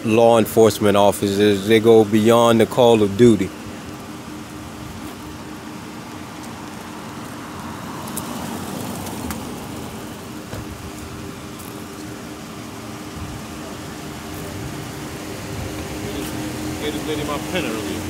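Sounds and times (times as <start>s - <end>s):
car driving past: 4.4s - 18.0s.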